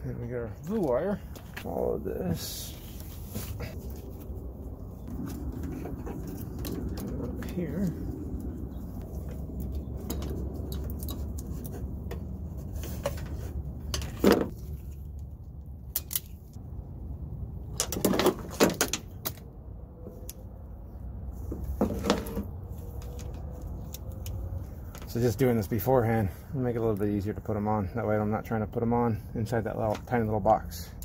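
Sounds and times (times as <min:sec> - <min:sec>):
steady low rumble: 0:00.0 - 0:17.9.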